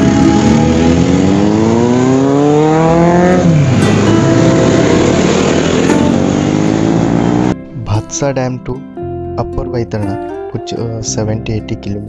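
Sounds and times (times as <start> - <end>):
motorcycle engine revving: 0.0 - 7.6
motorcycles accelerating past: 0.0 - 7.6.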